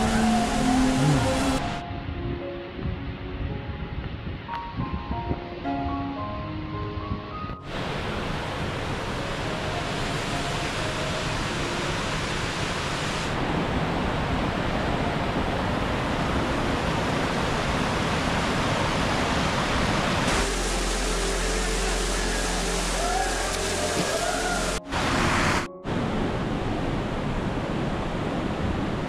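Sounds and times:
waterfall rushing: 0.0s - 1.8s, 7.7s - 29.0s
background music: 0.0s - 7.8s, 20.3s - 26.9s.

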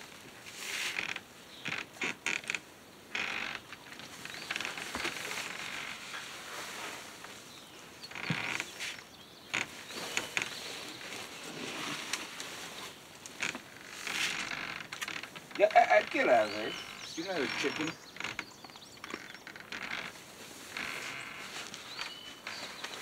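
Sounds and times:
plastic feed sacks rustling: 4.6s - 7.5s, 9.8s - 14.6s.

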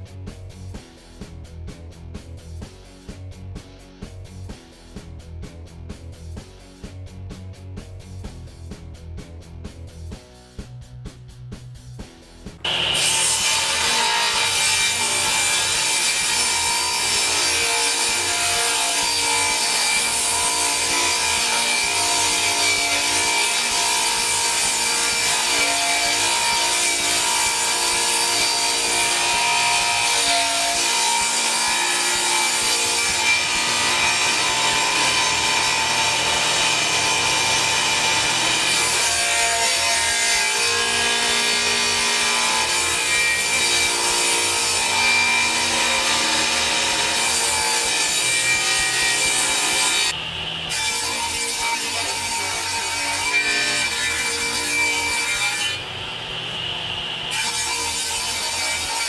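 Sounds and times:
table saw cutting plywood: 12.6s - 59.0s.

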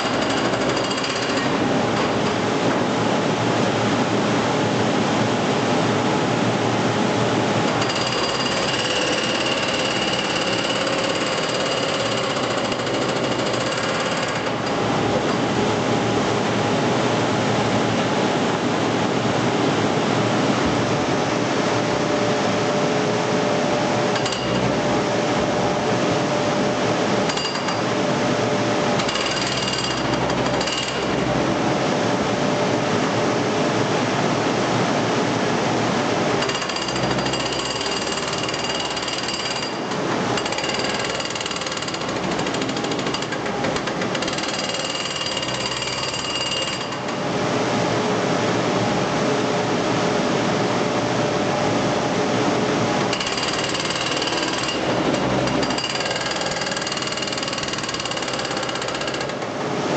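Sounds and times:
hydraulic breaker hammering bricks: 0.0s - 2.2s, 7.7s - 14.8s, 24.1s - 24.6s, 27.3s - 27.8s, 29.0s - 31.2s, 36.4s - 47.2s, 53.0s - 59.6s.

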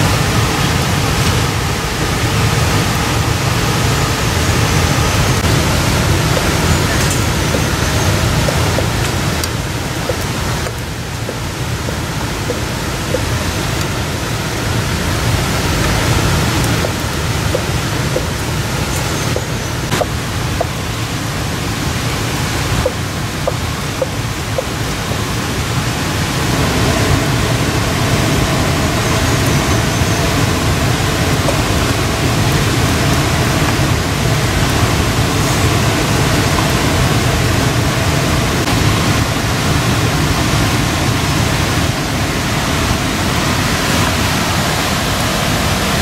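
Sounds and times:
loud rushing noise: 0.0s - 23.6s.

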